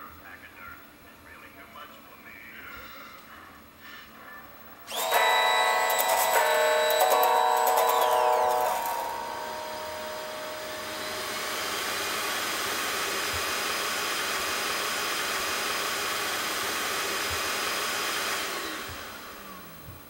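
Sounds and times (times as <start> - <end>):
electric blower running: 4.9 - 20.0.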